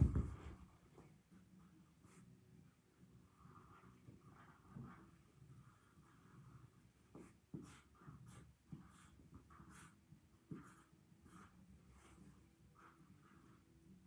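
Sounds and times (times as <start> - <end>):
marker strokes on paper: 1.0 - 14.0.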